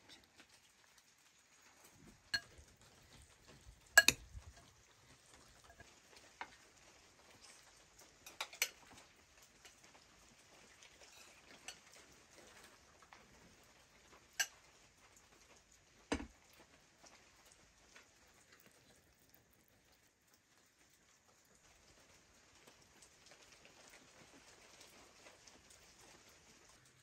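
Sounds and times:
spoons clinking on metal plates: 2.4s - 2.7s, 4.0s - 4.7s, 5.6s - 5.9s, 8.2s - 8.8s, 11.0s - 11.9s.

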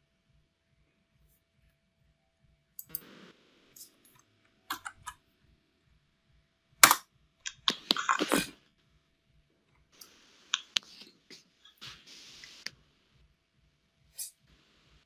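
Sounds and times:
computer mouse clicks: 2.8s - 3.1s, 3.8s - 5.2s.

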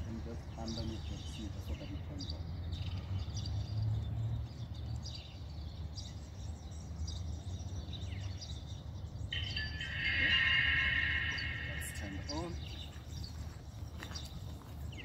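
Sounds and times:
bird chirps: 0.0s - 15.0s
steady multi-pitch tone: 9.3s - 13.2s.

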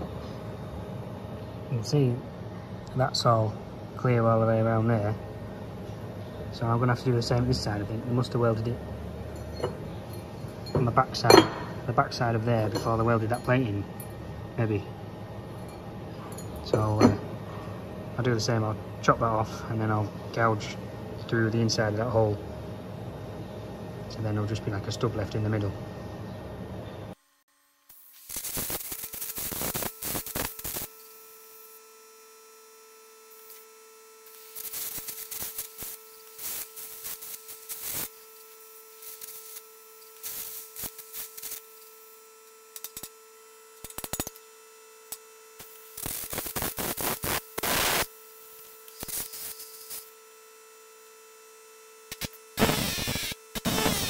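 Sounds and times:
crackling arc with air hiss: 0.0s - 54.0s
electrical hum: 0.0s - 54.0s.

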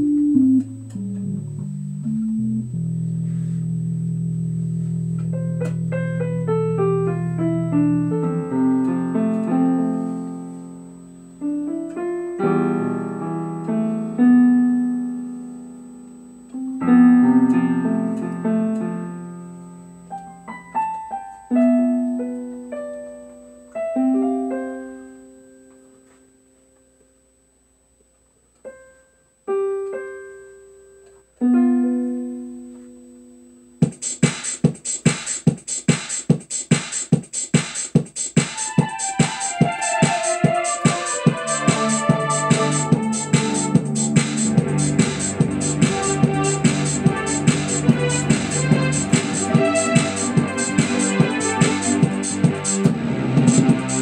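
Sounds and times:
piano-like keyboard chords: 0.0s - 34.8s, 38.6s - 54.0s
fast sharp ticking beat: 33.8s - 54.0s.

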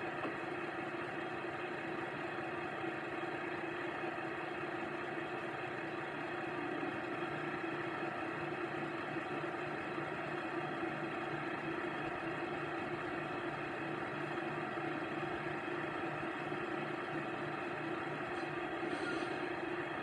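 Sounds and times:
train idling hum from small speaker: 16.2s - 20.0s.

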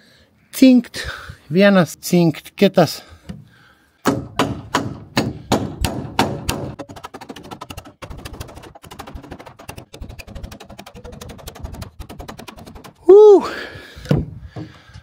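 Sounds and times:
hammer striking metal staple: 4.1s - 13.0s.

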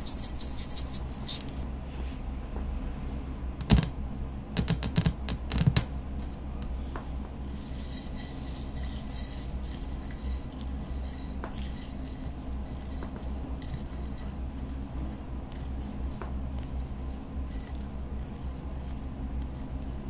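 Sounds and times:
stirring slime: 7.5s - 20.0s.

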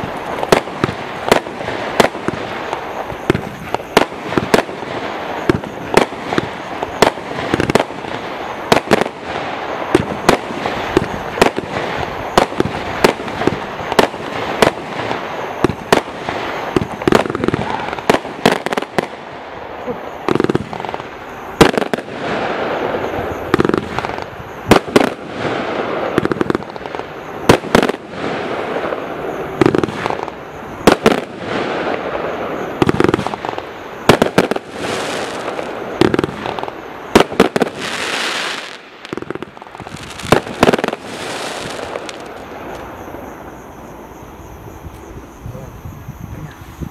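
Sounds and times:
deep firework booms: 0.0s - 43.6s
firework bangs: 0.0s - 45.2s
continuous firework hiss: 0.0s - 46.9s.

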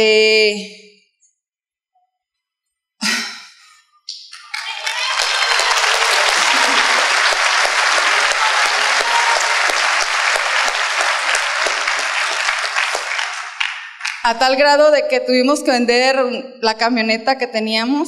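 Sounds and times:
audience applauding: 4.3s - 14.3s.

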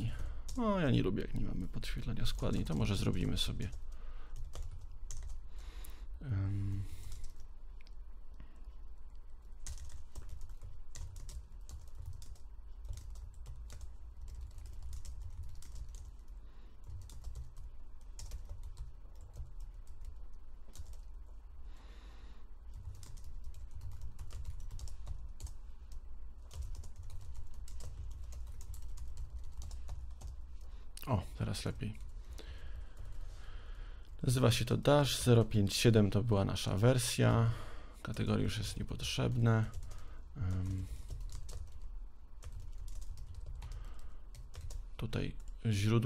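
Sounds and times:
typing on computer keyboard: 2.3s - 5.4s, 9.6s - 21.2s, 22.7s - 25.6s, 26.4s - 30.7s, 39.3s - 45.6s.

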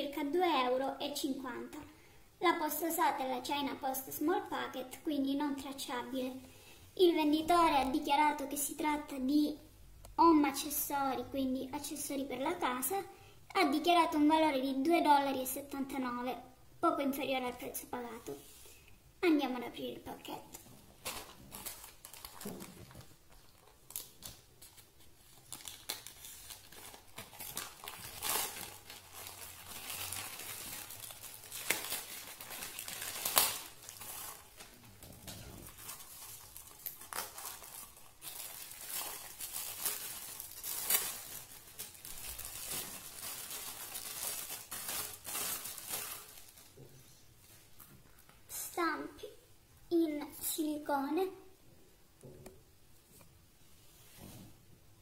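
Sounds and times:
plastic bag crinkling: 20.6s - 46.8s.

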